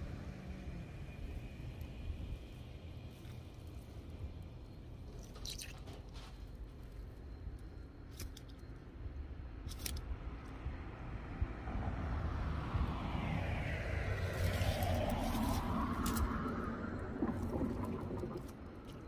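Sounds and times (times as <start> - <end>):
constant low rumble: 0.0 - 19.0
car approaching: 10.9 - 18.8.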